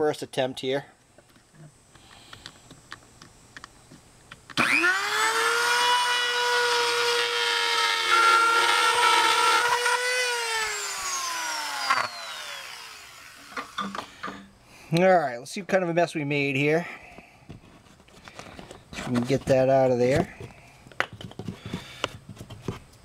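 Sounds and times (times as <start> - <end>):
rotary tool winding down: 4.6 - 13.9
rotary tool whining: 4.6 - 14.5.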